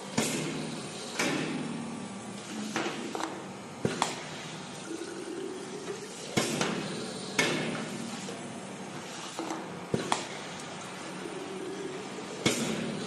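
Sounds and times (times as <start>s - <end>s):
clack and hiss bursts: 0.1s - 4.4s, 6.3s - 8.4s, 12.4s - 13.0s.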